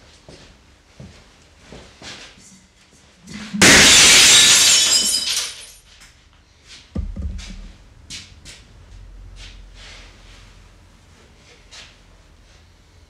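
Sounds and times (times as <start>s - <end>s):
heavy thump: 7.0s - 7.8s.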